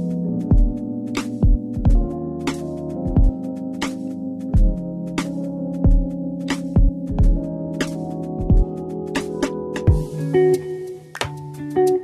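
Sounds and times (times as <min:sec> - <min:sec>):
synthesizer chords: 0:00.0 - 0:12.0
kick drum thumps: 0:00.5 - 0:00.8, 0:01.4 - 0:02.1, 0:03.1 - 0:03.4, 0:04.6 - 0:04.8, 0:05.8 - 0:06.1, 0:06.8 - 0:07.4, 0:08.4 - 0:08.7.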